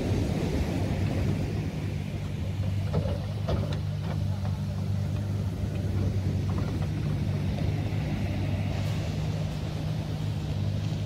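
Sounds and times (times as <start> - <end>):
diesel engine running: 0.0 - 11.0
surf breaking on beach: 0.0 - 11.0.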